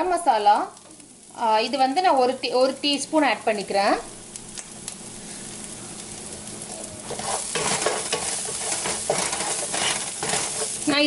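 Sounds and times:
onions sizzling in oil: 0.0 - 11.0
wooden spatula stirring and scraping: 7.0 - 11.0.

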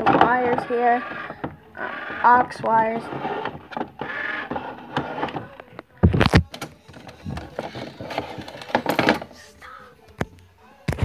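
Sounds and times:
plastic toys knocking and clicking: 0.0 - 1.6, 2.2 - 9.3.

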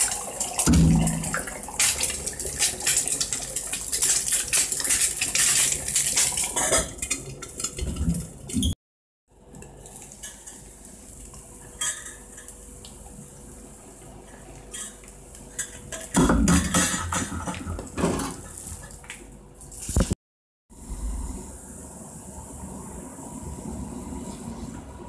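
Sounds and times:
eggs frying in a pan: 1.3 - 8.6, 9.5 - 16.2
metal cookware clattering: 4.6 - 8.6, 11.8 - 12.5, 14.7 - 18.6.

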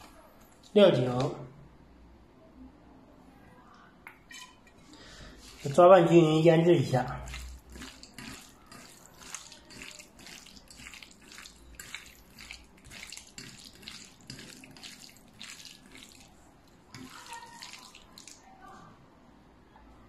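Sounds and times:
wet squelching of raw meat: 4.9 - 18.5.

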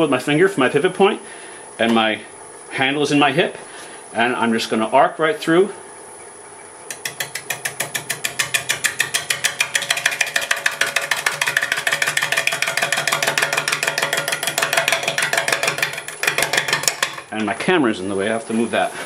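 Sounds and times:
log knocking against lathe tool: 6.9 - 17.5.

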